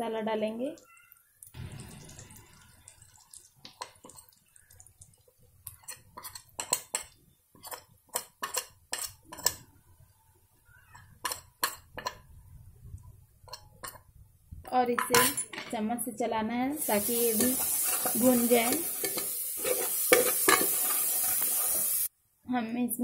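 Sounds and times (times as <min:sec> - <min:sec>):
utensil clinking on pot rim: 0:16.9 - 0:22.1.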